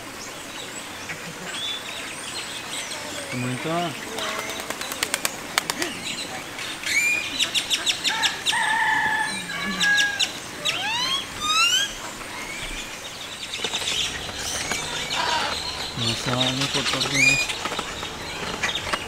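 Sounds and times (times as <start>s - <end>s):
flamingos honking: 3.1s - 19.0s
rapid clicking chatter: 3.3s - 8.1s, 13.1s - 19.0s
quick rising squeals: 10.8s - 19.0s.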